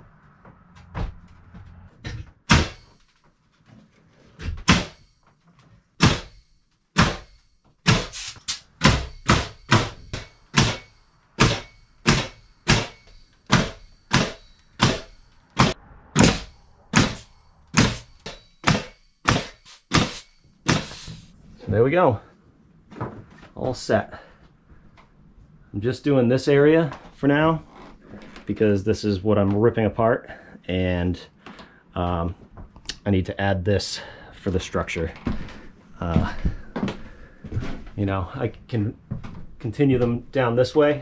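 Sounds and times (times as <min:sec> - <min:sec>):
pneumatic nailer shots: 0:02.4 - 0:03.1, 0:04.6 - 0:05.1, 0:06.0 - 0:21.3.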